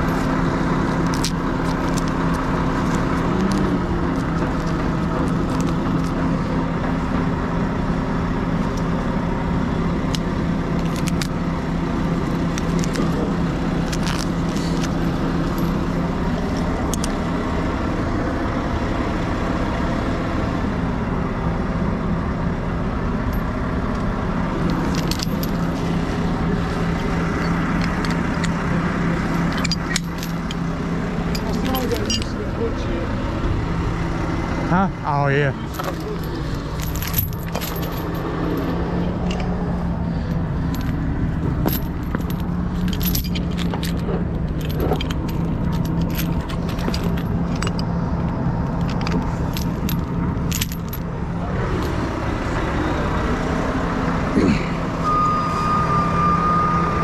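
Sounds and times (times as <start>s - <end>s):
chain and hook clinking: 0.0s - 6.4s, 10.1s - 11.4s, 12.1s - 17.2s, 24.6s - 28.7s, 29.3s - 30.7s, 31.3s - 32.4s, 35.6s - 51.1s
truck engine running: 0.0s - 57.0s.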